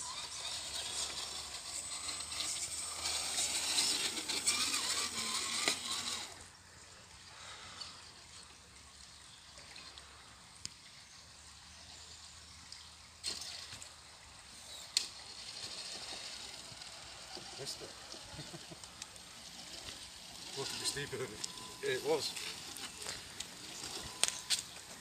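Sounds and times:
toy car motor whining: 0:00.0 - 0:06.6, 0:13.2 - 0:25.0
tyres on loose dirt: 0:00.0 - 0:08.6, 0:11.7 - 0:25.0.

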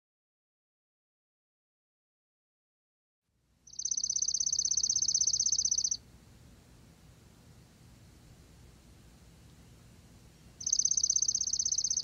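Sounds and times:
faint background hiss: 0:03.3 - 0:12.0.

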